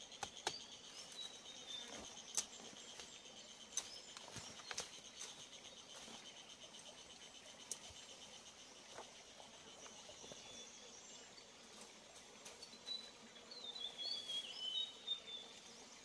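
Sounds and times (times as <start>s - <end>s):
clicks and rustles in grass: 0.0s - 7.0s, 11.6s - 13.0s
insects chirring: 0.0s - 16.0s.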